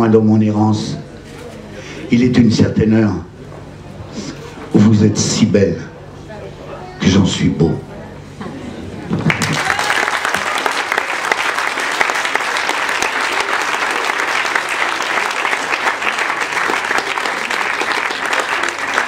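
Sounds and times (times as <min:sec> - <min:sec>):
audience clapping: 0:09.1 - 0:19.0.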